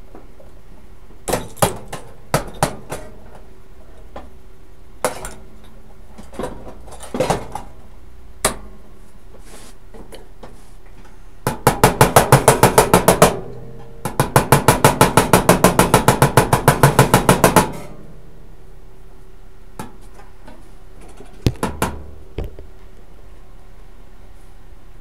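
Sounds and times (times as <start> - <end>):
hammer blows on sheet steel: 11.4 - 18.1.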